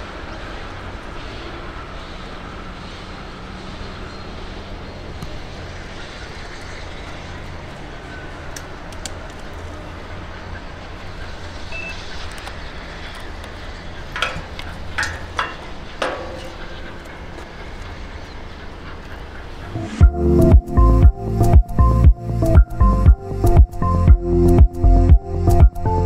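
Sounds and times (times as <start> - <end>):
steam locomotive chuffs: 0.0 - 22.1
steam locomotive rumble: 0.0 - 26.0.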